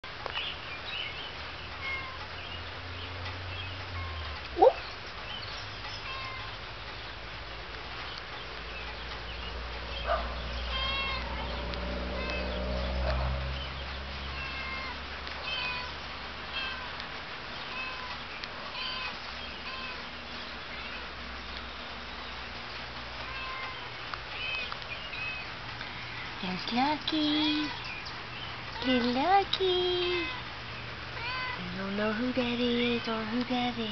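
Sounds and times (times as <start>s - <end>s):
cats mewing: 1.8s - 2.3s, 6.0s - 6.6s, 10.1s - 13.5s, 14.2s - 21.2s, 23.2s - 25.6s, 30.0s - 31.6s.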